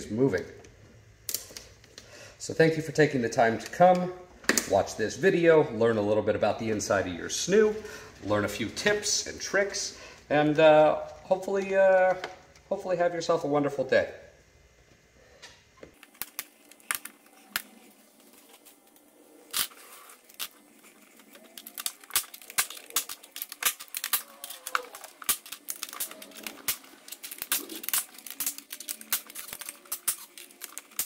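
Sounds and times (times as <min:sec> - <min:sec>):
plastic clips clicking: 0:19.6 - 0:31.0.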